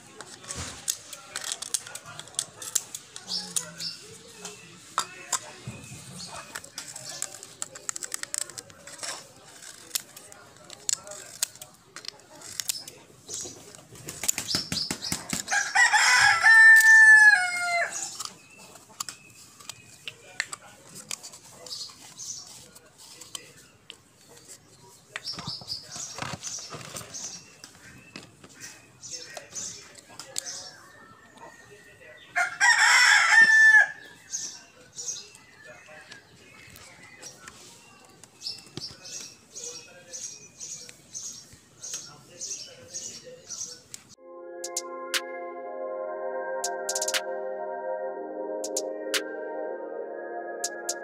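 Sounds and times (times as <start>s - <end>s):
rooster crowing: 15.5s - 17.9s, 32.4s - 34.0s.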